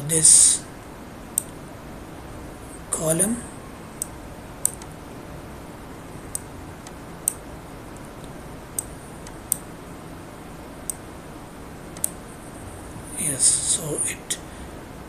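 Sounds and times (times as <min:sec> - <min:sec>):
steady low hiss: 0:00.0 - 0:15.0
computer mouse clicks: 0:04.0 - 0:04.9, 0:06.3 - 0:07.4, 0:08.2 - 0:09.7, 0:11.9 - 0:12.2.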